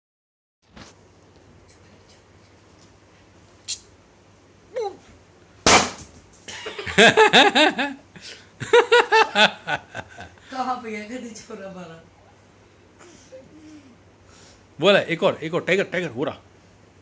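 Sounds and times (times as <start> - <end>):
person laughing: 6.5 - 8.0, 8.6 - 10.4.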